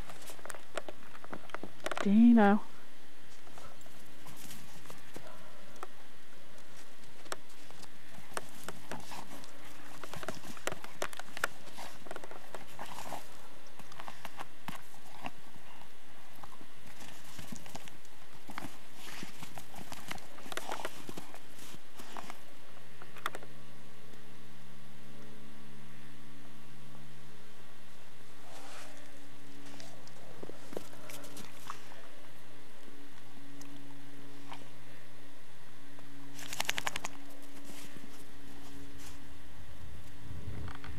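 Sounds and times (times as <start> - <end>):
dog digging in snow: 7.5 - 15.8, 16.8 - 22.4, 36.3 - 39.2.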